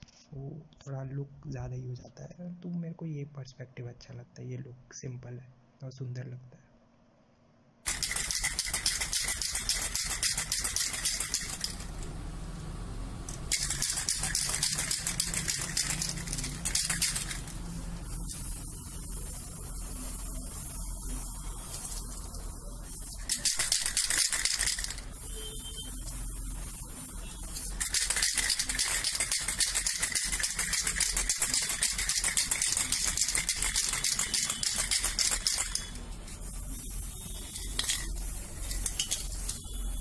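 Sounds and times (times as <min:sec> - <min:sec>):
spray paint can hissing: 0:07.8 - 0:12.0, 0:13.2 - 0:40.0
spray can ball rattling: 0:07.8 - 0:12.1, 0:13.2 - 0:39.9.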